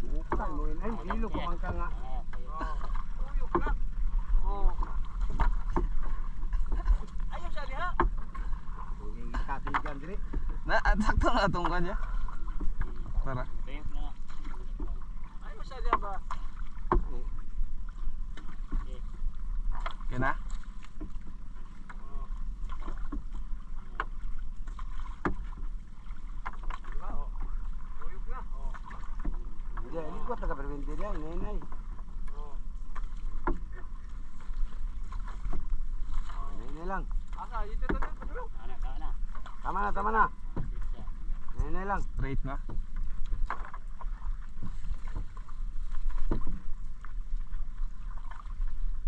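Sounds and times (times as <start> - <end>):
water splashing and streaming: 0.0 - 49.0
slaps and knocks against hull: 4.8 - 8.4, 9.6 - 10.4, 15.8 - 17.2, 19.7 - 21.2, 22.6 - 25.7, 26.4 - 27.5, 30.9 - 38.4, 40.4 - 40.9, 42.2 - 47.1.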